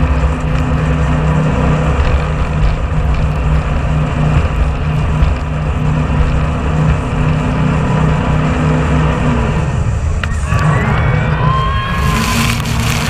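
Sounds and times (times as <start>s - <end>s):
boat engine drone: 0.0s - 13.0s
rushing wind and water: 11.7s - 13.0s.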